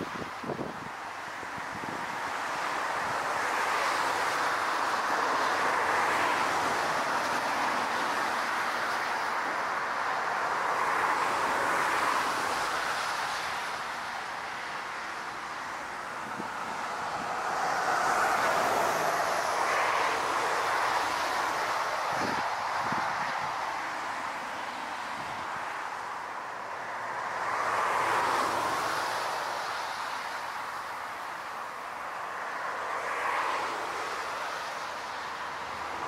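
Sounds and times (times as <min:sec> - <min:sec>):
gusting wind: 0:00.0 - 0:36.0
airliner rushing roar: 0:15.3 - 0:23.5.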